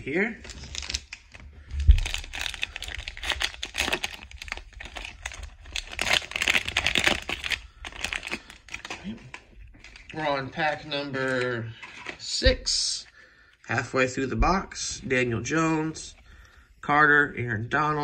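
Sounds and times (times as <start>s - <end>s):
plastic wrapper crinkling: 0.4s - 12.4s
dull low thump: 1.7s - 2.4s.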